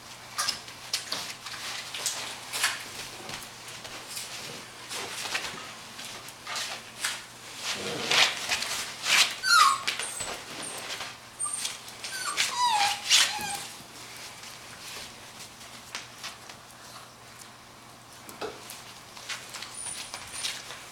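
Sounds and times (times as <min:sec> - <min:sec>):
rustling and scratching on couch: 0:01.0 - 0:16.6
puppy whimpering: 0:09.4 - 0:13.8, 0:19.6 - 0:20.7.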